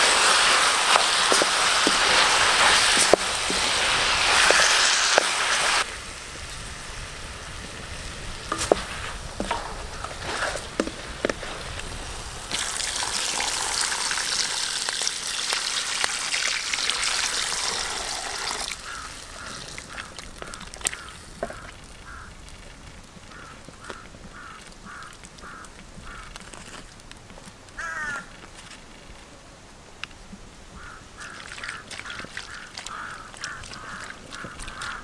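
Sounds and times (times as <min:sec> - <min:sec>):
meat sizzling in a wok: 0:00.0 - 0:22.2
quiet simmer: 0:00.0 - 0:27.6.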